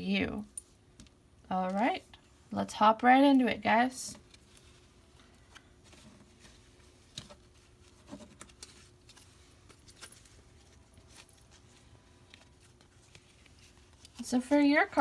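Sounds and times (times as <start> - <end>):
cards clicking and rustling: 4.2 - 15.0.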